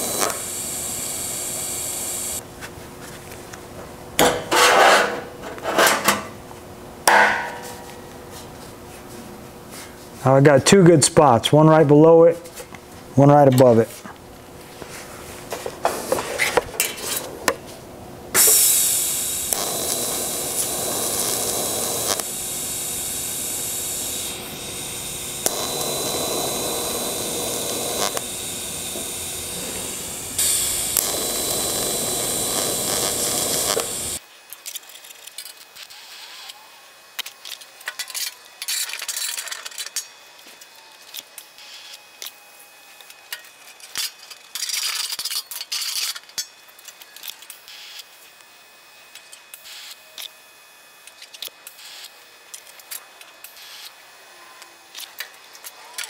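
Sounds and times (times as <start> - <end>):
welding arc hissing buzz: 0.0 - 2.4, 18.3 - 34.2, 49.0 - 52.3, 53.4 - 54.0.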